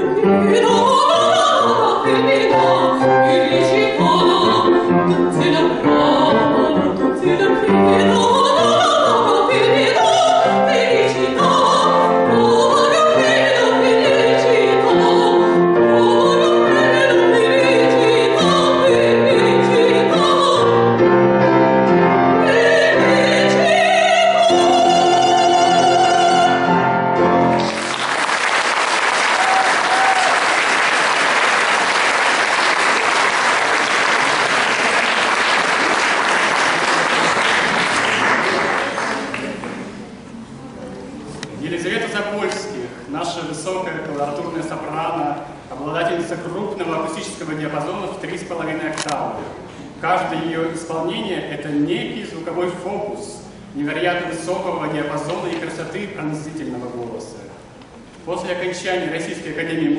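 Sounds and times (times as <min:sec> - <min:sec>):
soprano singing opera: 0:00.0 - 0:27.2
piano accompaniment: 0:00.0 - 0:40.3
audience applause: 0:27.5 - 0:39.8.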